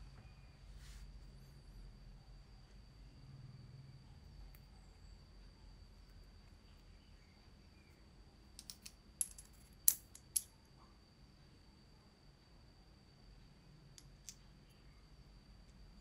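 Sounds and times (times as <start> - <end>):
sharp clicks and taps of parts: 8.6 - 10.5.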